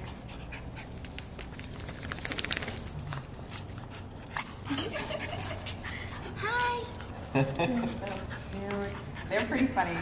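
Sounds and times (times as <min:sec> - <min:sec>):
dog claws clicking on concrete: 0:00.9 - 0:04.8.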